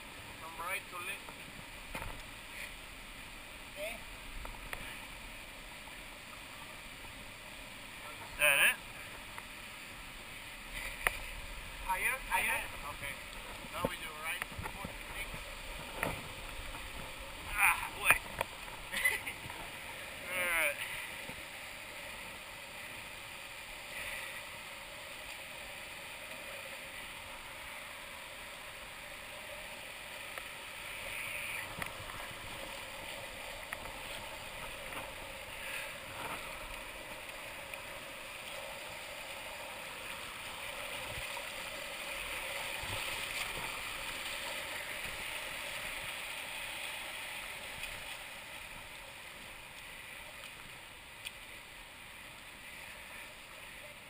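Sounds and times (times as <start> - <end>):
river rushing over rocks: 0.0 - 54.0
splashes of people wading: 30.2 - 54.0.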